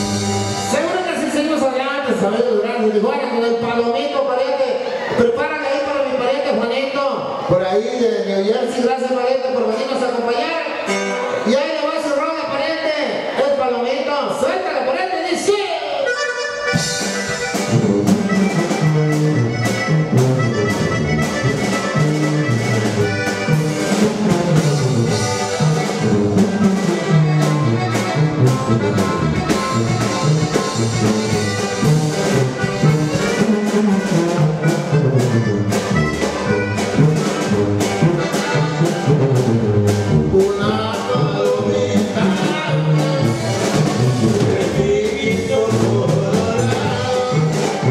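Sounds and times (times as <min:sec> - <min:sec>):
drum kit beat: 0:00.0 - 0:01.3, 0:16.2 - 0:47.9
tuba bass line: 0:00.0 - 0:04.0, 0:16.0 - 0:47.9
accordion melody: 0:00.0 - 0:04.2, 0:08.6 - 0:12.1, 0:15.8 - 0:47.9
guitar: 0:00.0 - 0:08.0, 0:08.6 - 0:47.9.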